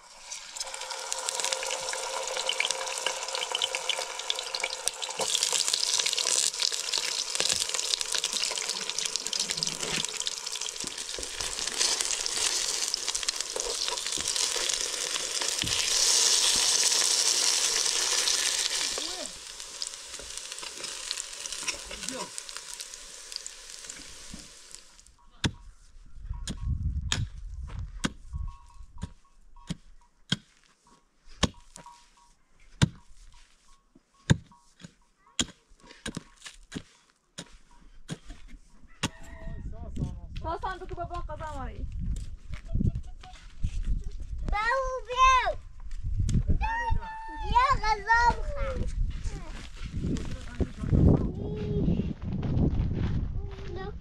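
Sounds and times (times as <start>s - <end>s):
food sizzling in oil: 0.0s - 25.1s
pickaxe striking stony ground: 32.8s - 33.0s.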